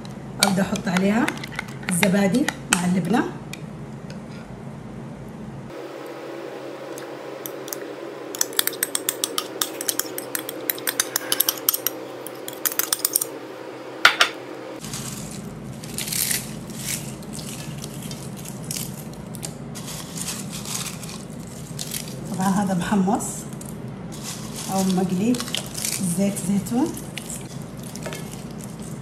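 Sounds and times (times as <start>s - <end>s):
spoon scraping a bowl: 0.7s - 2.2s, 8.5s - 13.2s
rustling: 14.8s - 18.9s, 19.8s - 22.2s, 24.1s - 26.2s.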